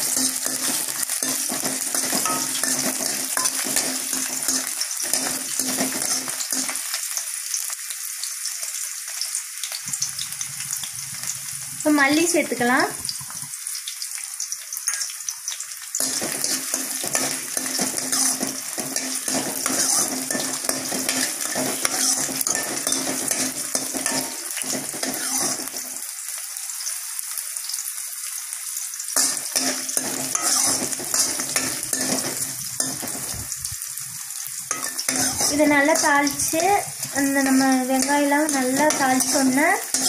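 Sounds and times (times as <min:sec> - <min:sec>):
metal spoon scraping pan: 0:00.0 - 0:07.0, 0:16.0 - 0:25.9, 0:29.2 - 0:33.5, 0:34.7 - 0:40.0
hot oil sizzling: 0:00.0 - 0:40.0.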